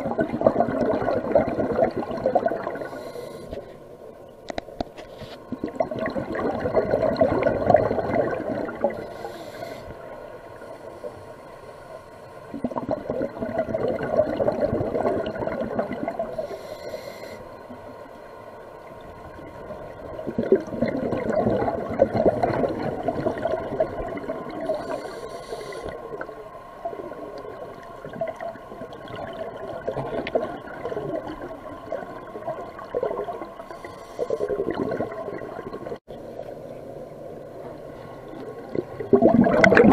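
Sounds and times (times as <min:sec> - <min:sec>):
exhaled air bubbling underwater: 0:00.0 - 0:04.8, 0:05.4 - 0:39.9
regulator inhalation hiss: 0:02.8 - 0:03.8, 0:09.0 - 0:12.2, 0:16.3 - 0:17.7, 0:24.7 - 0:26.1.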